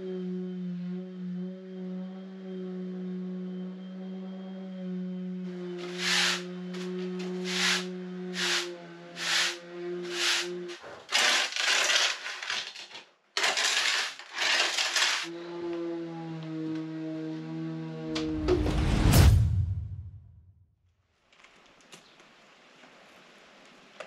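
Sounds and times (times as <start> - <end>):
musical drone: 0.0 - 10.8, 15.3 - 19.0
trowel scraping plaster: 5.8 - 15.3.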